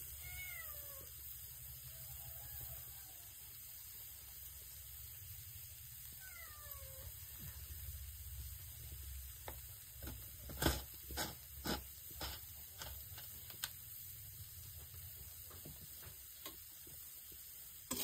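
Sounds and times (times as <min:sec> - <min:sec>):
cat meowing: 0:00.1 - 0:01.1, 0:06.2 - 0:07.2.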